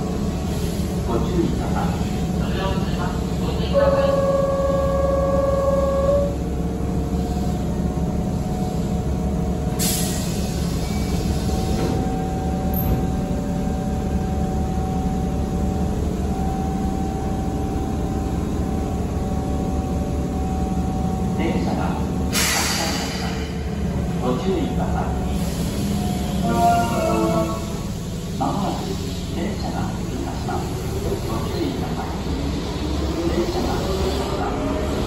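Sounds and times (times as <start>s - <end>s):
train humming at platform: 0.0s - 35.0s
air hiss of doors closing: 9.8s - 12.1s, 22.3s - 23.6s.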